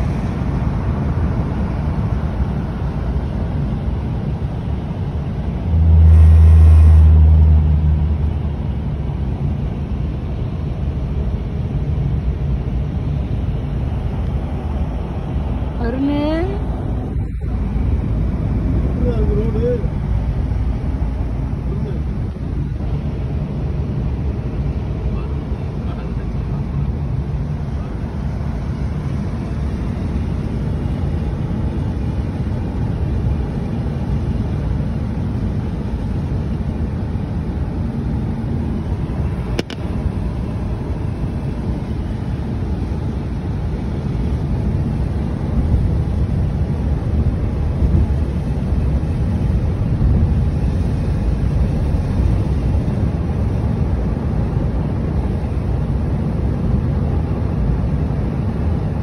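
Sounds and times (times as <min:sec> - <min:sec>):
car cabin road rumble: 0:00.0 - 0:59.0
brief click: 0:39.6 - 0:39.8.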